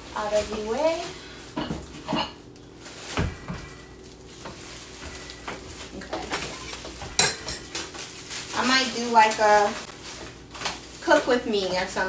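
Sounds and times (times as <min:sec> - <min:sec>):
packaging knocks and rustles: 0:02.8 - 0:11.9.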